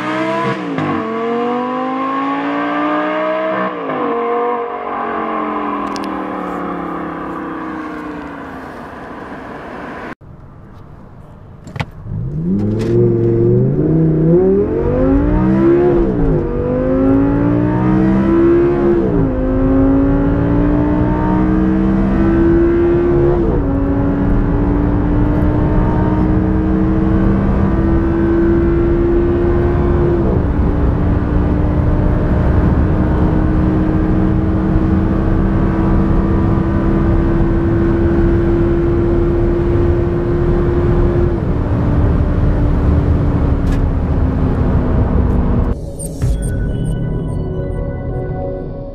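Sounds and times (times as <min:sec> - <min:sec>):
car engine accelerating through gears: 0:00.0 - 0:10.2, 0:12.0 - 0:45.8
car passing on road: 0:00.0 - 0:18.8.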